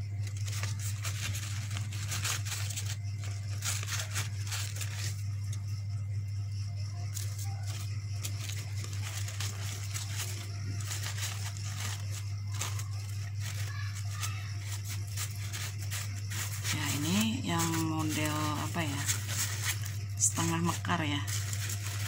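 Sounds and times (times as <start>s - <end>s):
low electrical hum: 0.0s - 22.0s
paper rustling and crinkling: 0.1s - 5.8s, 7.0s - 22.0s.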